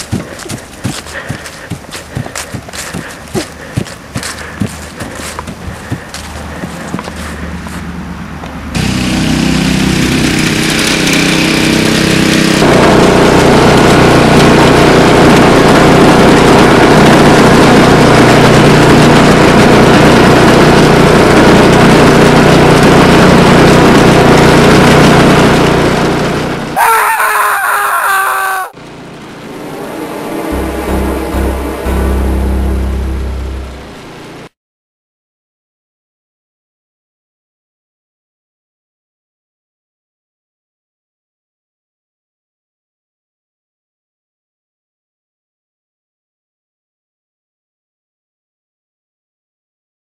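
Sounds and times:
lawnmower engine running: 0.0 - 34.5
higher wavering sound: 29.4 - 34.4.

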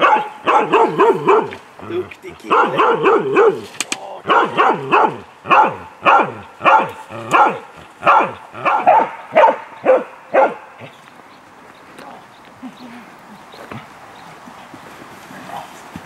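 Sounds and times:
dog barking loudly: 0.0 - 1.6, 2.4 - 11.0.

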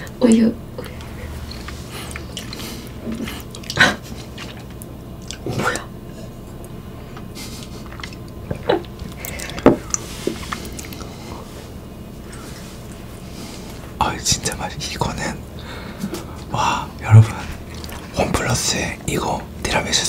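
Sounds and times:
wet mouth clicks: 0.8 - 5.9, 7.6 - 11.1
swallowing: 0.8 - 6.2, 7.2 - 11.5, 15.6 - 18.2.

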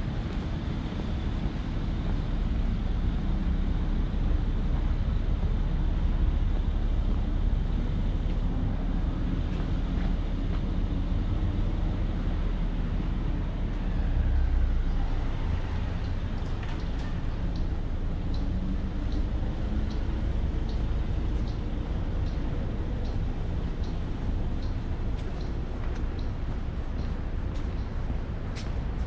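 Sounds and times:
street traffic rumble: 0.0 - 29.0
faint light ticks: 16.0 - 29.0.

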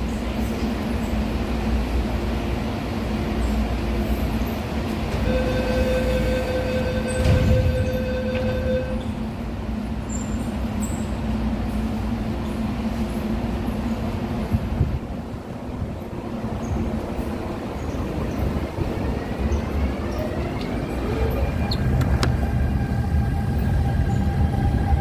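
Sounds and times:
train humming: 0.0 - 25.0
door-closing warning tone: 5.1 - 9.2
train doors thud shut: 7.0 - 9.0.

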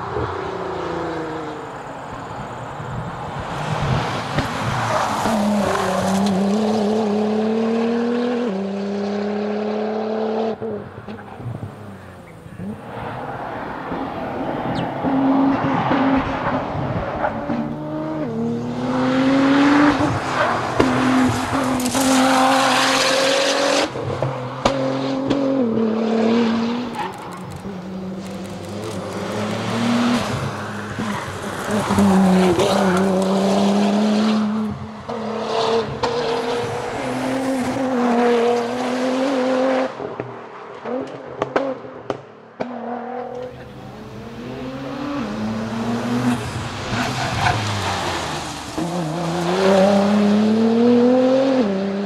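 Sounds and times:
car engine revving hard: 5.2 - 10.8, 14.7 - 26.9, 27.6 - 40.0, 42.7 - 52.0.

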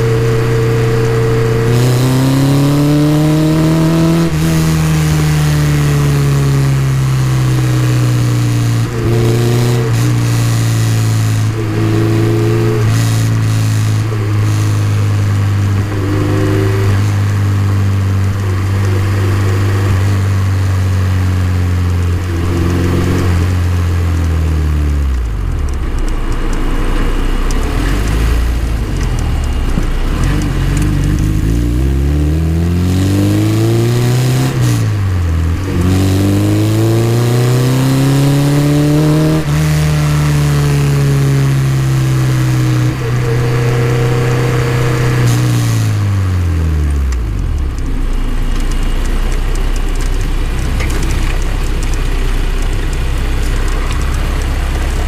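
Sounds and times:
car engine through exhaust: 0.0 - 55.0.

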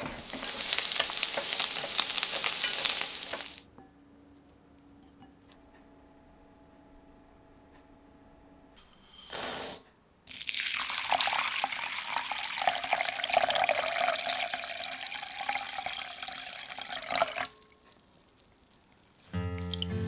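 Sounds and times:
water pouring into bowl: 10.3 - 20.0.

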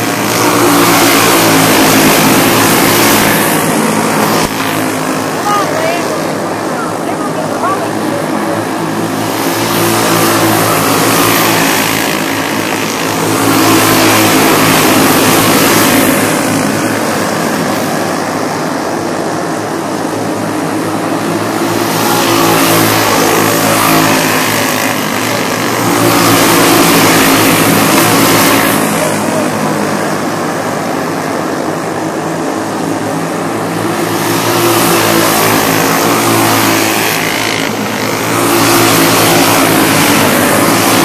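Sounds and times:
racing kart engines passing: 0.0 - 41.0.

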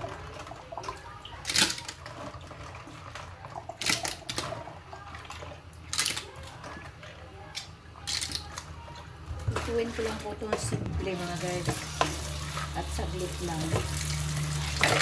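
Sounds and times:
water splashing in bowl: 9.5 - 15.0.

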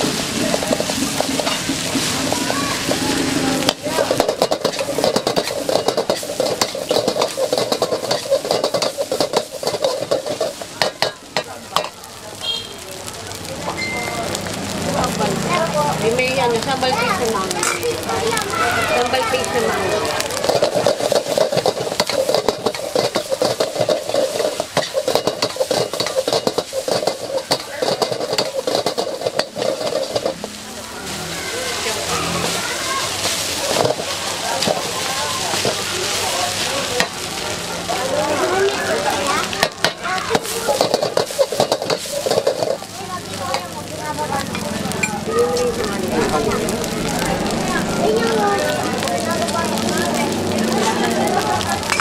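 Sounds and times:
spatula scraping pan: 0.0 - 11.5, 20.3 - 34.9, 39.5 - 42.9
food sizzling: 0.0 - 52.0.

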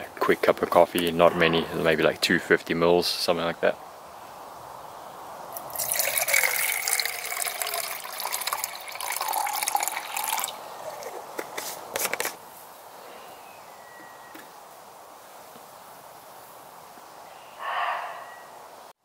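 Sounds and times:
water pouring into metal pot: 5.6 - 11.0.

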